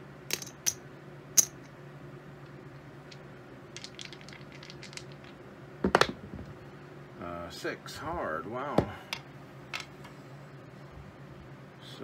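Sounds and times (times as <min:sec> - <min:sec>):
dice clattering on a table: 0:02.8 - 0:06.5.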